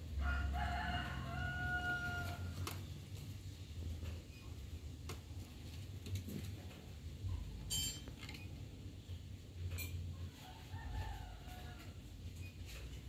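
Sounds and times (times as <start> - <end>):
rooster crowing: 0.2 - 2.6, 10.4 - 12.1.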